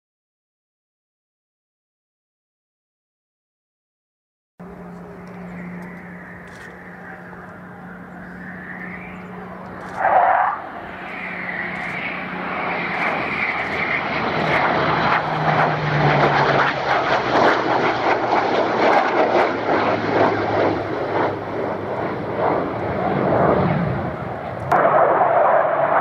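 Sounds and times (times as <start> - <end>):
aircraft engines flying past: 4.6 - 26.0.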